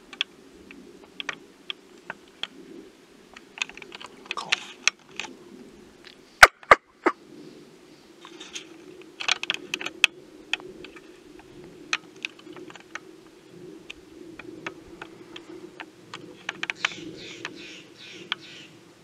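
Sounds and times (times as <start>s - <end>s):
steady low hum: 0.0s - 19.0s
sharp clicks and ticks: 0.1s - 0.3s, 1.0s - 2.6s, 9.2s - 13.0s, 13.8s - 17.6s
harsh rasping bird calls: 0.9s - 19.0s.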